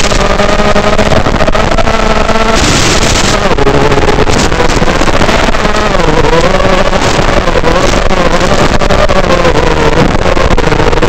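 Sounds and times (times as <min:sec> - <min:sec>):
audio crackles: 0:00.0 - 0:11.0
drone motors whining: 0:00.0 - 0:11.0.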